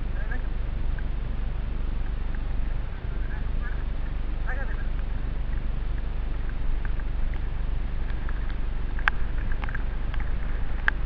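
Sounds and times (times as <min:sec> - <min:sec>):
low rumble of wind and trail: 0:00.0 - 0:11.0
bike clicks and rattles: 0:05.5 - 0:11.0.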